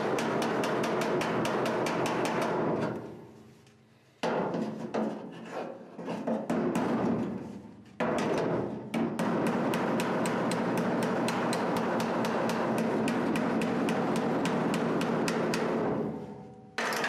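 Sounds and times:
hammer striking steel panel: 0.0s - 3.1s, 4.2s - 5.2s, 6.3s - 17.0s.

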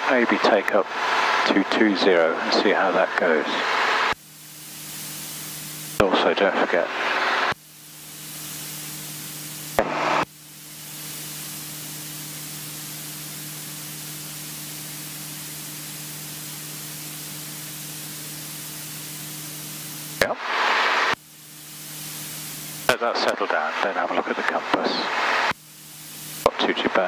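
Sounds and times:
light aircraft engine in cockpit: 0.0s - 9.8s.

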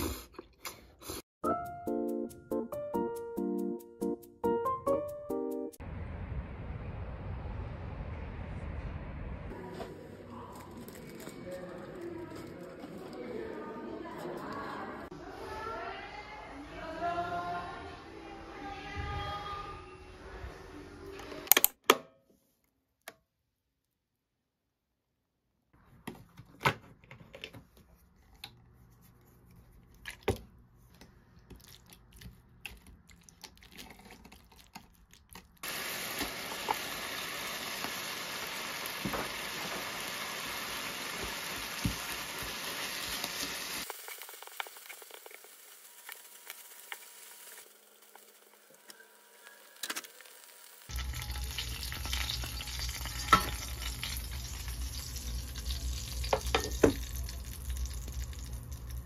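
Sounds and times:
rice frying sizzling: 35.6s - 59.0s
pan and utensils clicking: 50.9s - 57.0s.

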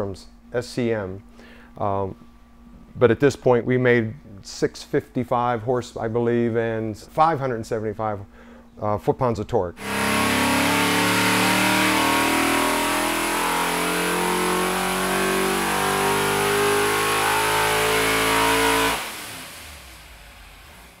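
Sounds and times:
race engine running loud: 9.8s - 21.0s.

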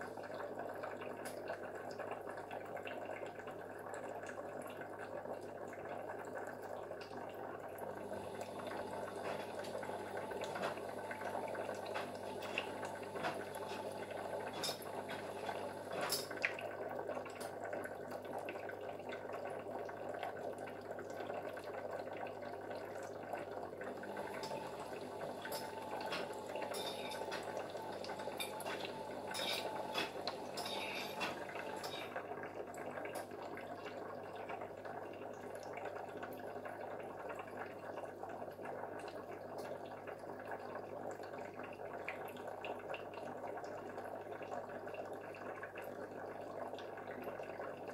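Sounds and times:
water trickling and dripping: 0.0s - 47.9s
low steady hum: 22.2s - 34.4s.

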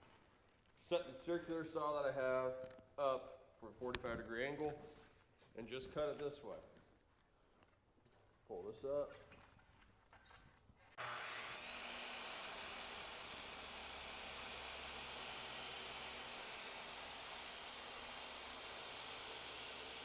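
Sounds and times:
circular saw cutting foam: 10.9s - 20.0s.

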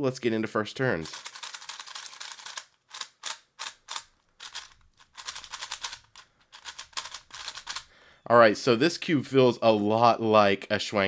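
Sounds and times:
speed cube clicking: 1.0s - 7.9s.

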